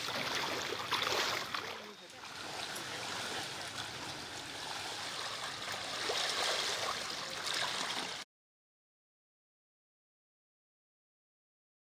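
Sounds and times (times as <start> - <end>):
bicycle splashing through floodwater: 0.0 - 8.2.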